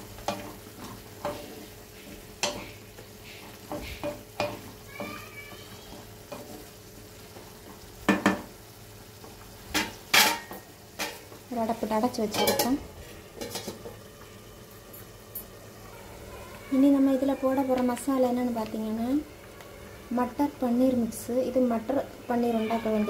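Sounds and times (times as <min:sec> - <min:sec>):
low sizzle: 0:00.0 - 0:23.0
wooden spatula scraping pan: 0:00.2 - 0:05.1.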